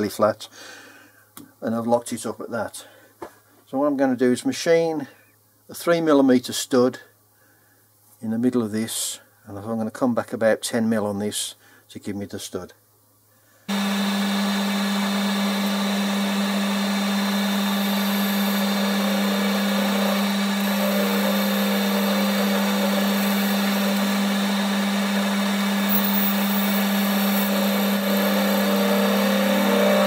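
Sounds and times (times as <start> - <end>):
metal lathe running: 13.7 - 30.0.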